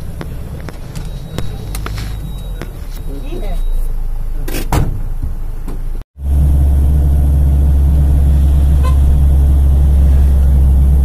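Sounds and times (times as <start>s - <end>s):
vehicle engine and road noise: 0.0s - 11.0s
faint horn toot: 8.7s - 9.2s.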